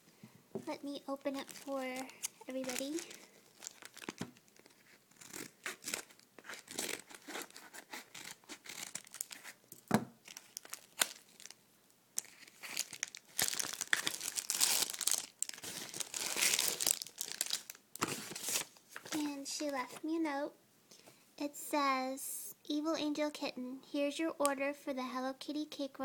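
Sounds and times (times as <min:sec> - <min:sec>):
packaging tearing and crinkling: 0:01.2 - 0:09.6, 0:10.2 - 0:11.6, 0:12.2 - 0:19.2.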